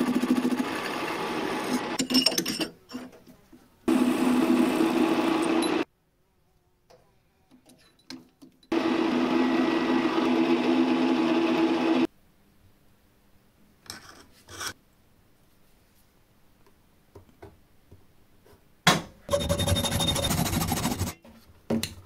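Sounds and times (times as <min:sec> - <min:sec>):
metal lathe humming: 0:08.7 - 0:12.1.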